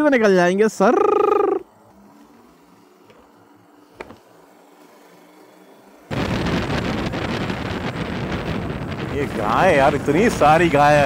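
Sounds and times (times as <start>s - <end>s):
motorcycle riding noise: 0.0s - 11.0s
wind rush on microphone: 6.1s - 11.0s.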